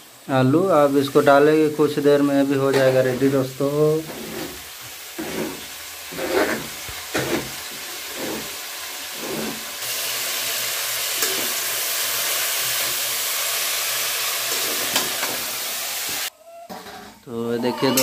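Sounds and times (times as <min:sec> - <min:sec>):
greens sizzling in hot oil: 0:00.0 - 0:16.9
food scraping off a plastic tray: 0:04.0 - 0:04.6, 0:05.2 - 0:08.6, 0:09.2 - 0:09.7.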